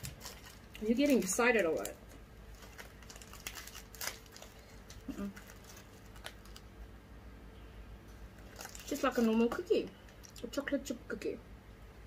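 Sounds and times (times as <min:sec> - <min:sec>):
plastic wrapper crinkling: 0:00.0 - 0:06.8, 0:08.4 - 0:10.5.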